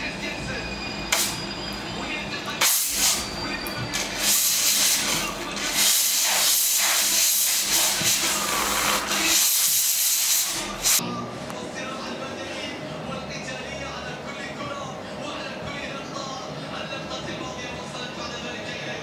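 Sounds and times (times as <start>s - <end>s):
air-water syringe hissing: 5.7s - 11.0s.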